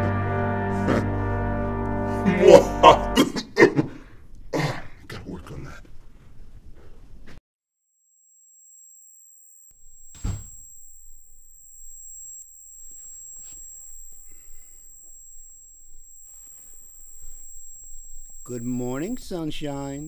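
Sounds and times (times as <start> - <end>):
high-pitched ringing tone: 7.8 - 20.0.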